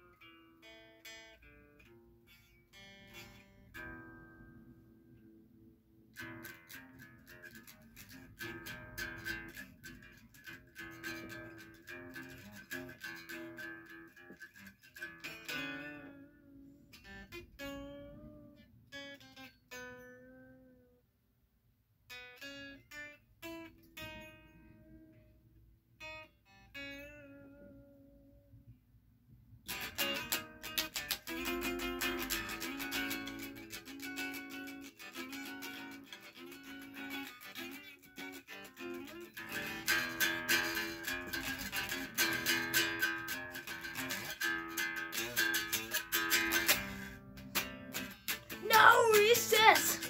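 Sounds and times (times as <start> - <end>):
electric guitar riffs: 6.2 - 20.9, 29.7 - 50.0.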